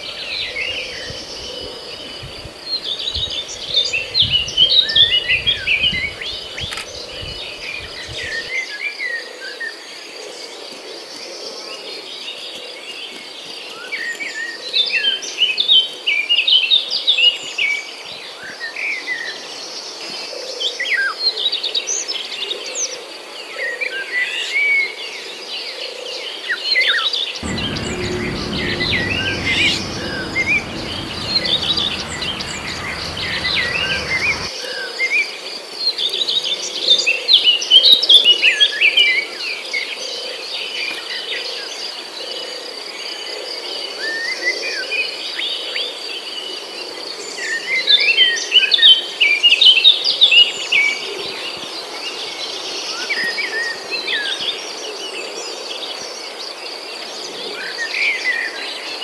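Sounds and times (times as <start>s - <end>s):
low hum: 27.4s - 34.5s.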